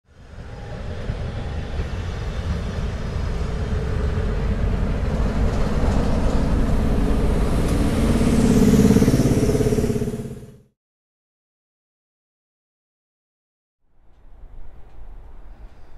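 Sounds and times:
diesel locomotive rumbling: 0.1 - 10.7, 14.0 - 15.9.

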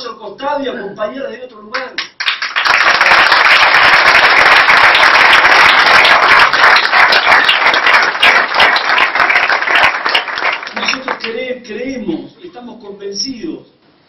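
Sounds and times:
crowd applauding: 2.2 - 11.4.

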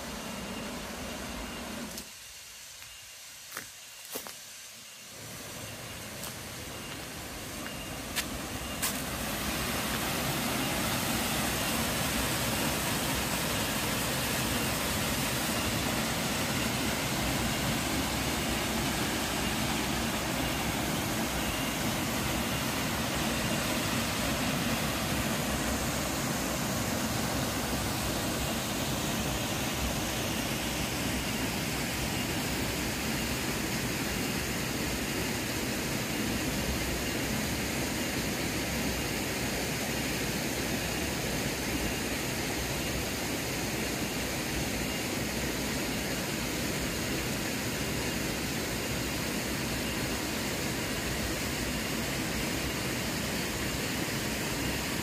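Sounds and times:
waterfall rushing: 7.2 - 33.7.

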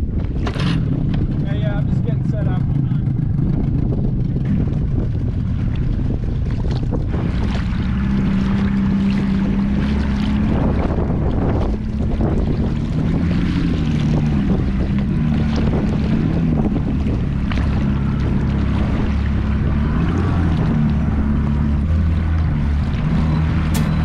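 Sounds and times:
boat engine running: 0.0 - 24.0
wind buffeting microphone: 0.0 - 24.0.

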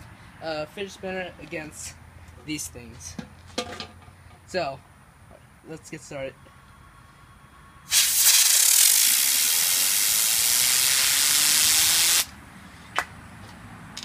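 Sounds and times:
compressed air hissing: 7.9 - 12.3.

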